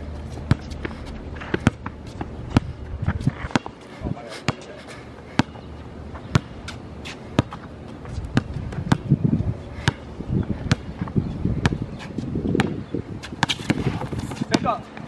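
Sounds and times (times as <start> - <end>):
basketball bouncing on hard court: 0.5 - 0.8, 1.4 - 2.8, 3.4 - 3.8, 6.3 - 6.5, 7.4 - 7.6, 8.3 - 9.2, 9.8 - 10.0, 10.7 - 11.8, 12.5 - 14.7.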